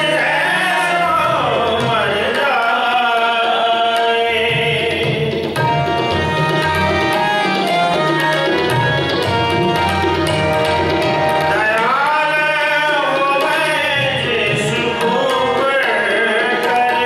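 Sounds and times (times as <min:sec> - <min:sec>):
man singing: 0:00.0 - 0:05.7, 0:11.4 - 0:17.0
harmonium chords: 0:00.0 - 0:17.0
tabla drumming: 0:00.0 - 0:17.0.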